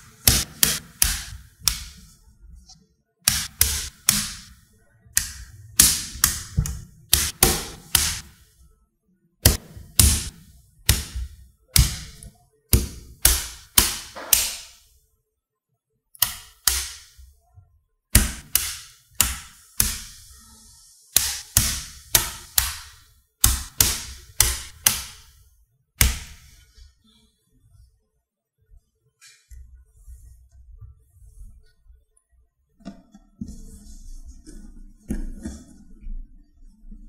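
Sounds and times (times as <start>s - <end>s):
magnetic balls snapping together: 0.2s - 2.1s, 3.2s - 4.6s, 5.2s - 8.5s, 9.4s - 14.9s, 16.2s - 17.2s, 18.2s - 20.3s, 21.1s - 25.4s.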